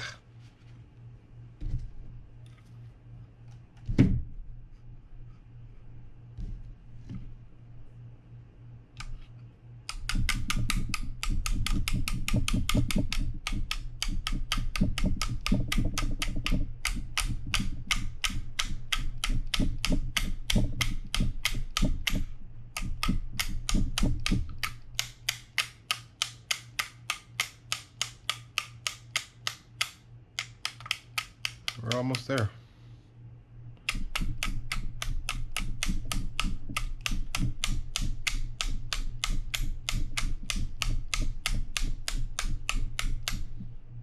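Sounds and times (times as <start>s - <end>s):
rapid metal clicks from hand tool: 23.0s - 32.2s.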